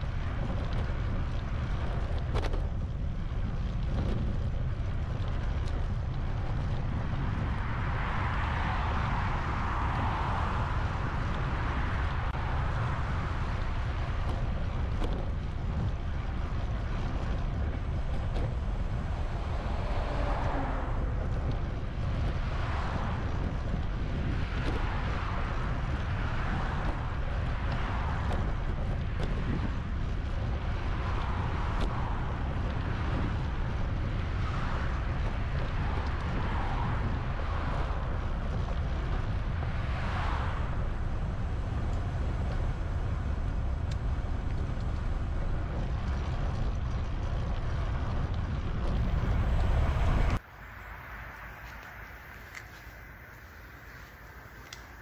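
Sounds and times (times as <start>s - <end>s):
wind rumbling on microphone: 0.0s - 55.0s
rushing noise: 48.6s - 55.0s.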